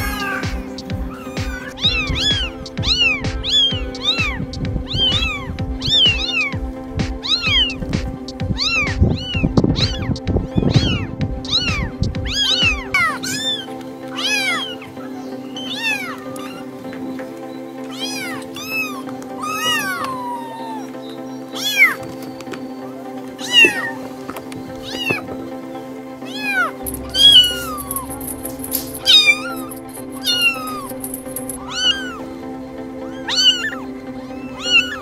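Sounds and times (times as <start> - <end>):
kittens mewing: 0.0 - 7.8, 8.4 - 16.7, 17.9 - 21.0, 21.6 - 22.0, 23.4 - 24.0, 24.8 - 25.2, 26.2 - 32.3, 33.0 - 35.0
background music with steady beat: 0.0 - 35.0.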